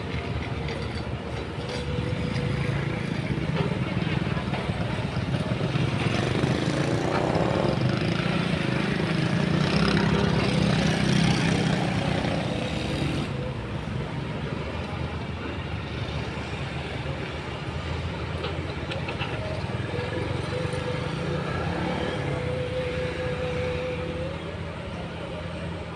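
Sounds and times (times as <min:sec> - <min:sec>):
diesel engines running: 0:00.0 - 0:25.9.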